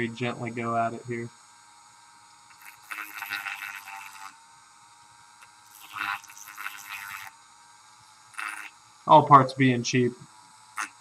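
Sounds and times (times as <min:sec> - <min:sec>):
rotary tool grinding metal: 0:02.2 - 0:07.5, 0:08.1 - 0:09.0, 0:10.3 - 0:11.0.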